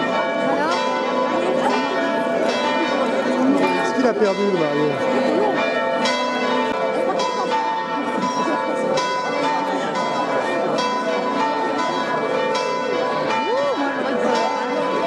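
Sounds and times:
church bells ringing: 0.0 - 15.0
crowd chatter: 0.0 - 15.0.

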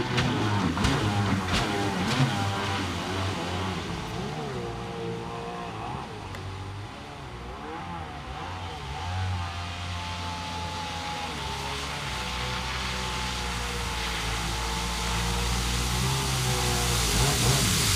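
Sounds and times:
jet ski engine running: 0.0 - 17.9
water spray hissing: 11.3 - 17.9.

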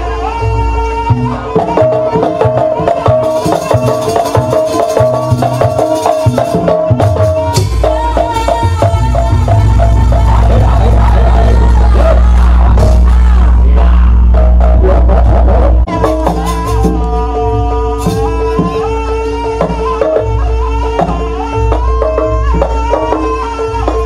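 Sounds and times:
reedy melody line: 0.0 - 24.0
hand drums beating quickly: 1.5 - 24.0
loud low drone: 8.8 - 19.7.

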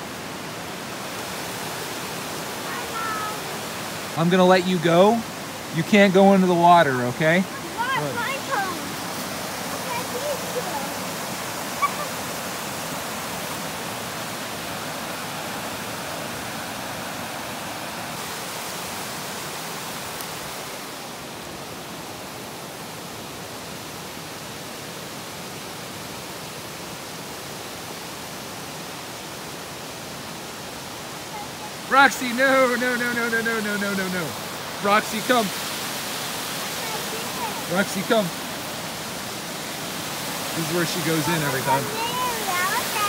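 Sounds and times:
water pouring over a dam: 40.1 - 43.0.

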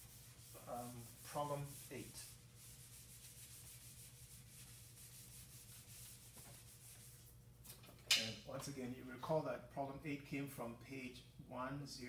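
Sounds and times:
eraser rubbing on whiteboard: 0.0 - 7.3.

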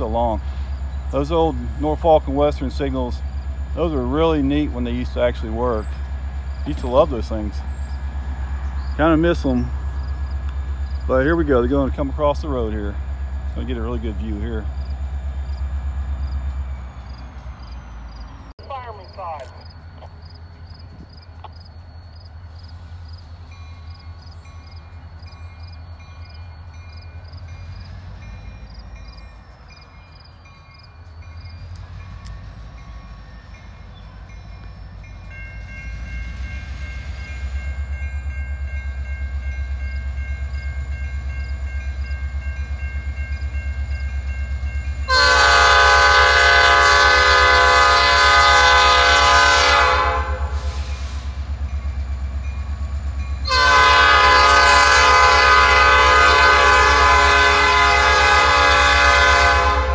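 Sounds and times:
locomotive horn blast: 45.1 - 51.4, 53.4 - 59.9.

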